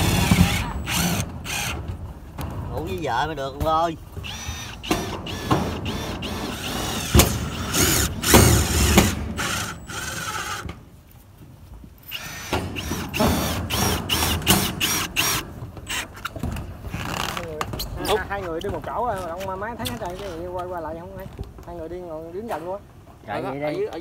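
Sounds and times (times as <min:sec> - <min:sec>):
drill whirring: 0:00.0 - 0:01.8, 0:04.2 - 0:10.7, 0:12.1 - 0:16.1.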